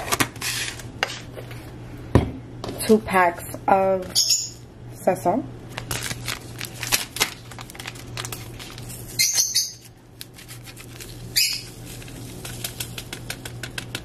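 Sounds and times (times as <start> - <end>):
foil packets crinkling: 5.7 - 14.0.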